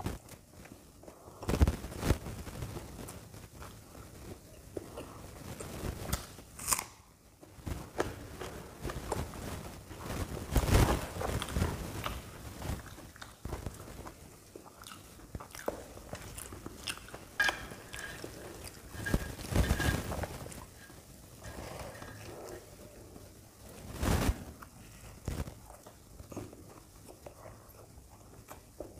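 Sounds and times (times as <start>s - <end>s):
crisp fried bread crackling: 0.0s - 6.9s, 7.5s - 27.0s
crunchy bites and chewing: 6.0s - 7.1s.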